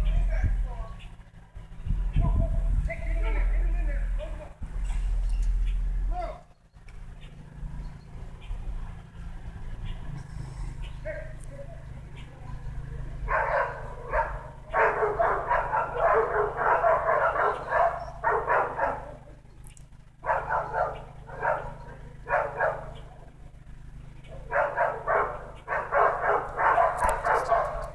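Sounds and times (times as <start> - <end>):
dog barking: 13.2 - 19.2, 20.2 - 23.2, 24.2 - 27.9.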